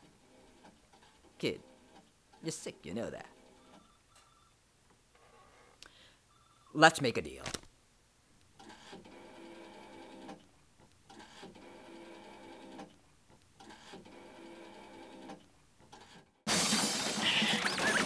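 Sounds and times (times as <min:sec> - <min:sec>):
faint mechanical whirr: 0:08.4 - 0:16.4.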